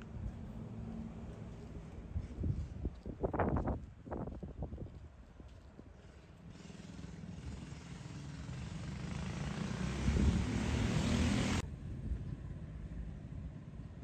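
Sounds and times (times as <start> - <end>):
vehicle passing: 6.5 - 11.6.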